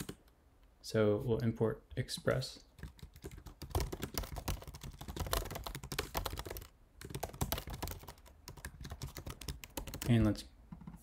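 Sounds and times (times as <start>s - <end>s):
computer keyboard typing: 2.8s - 11.0s.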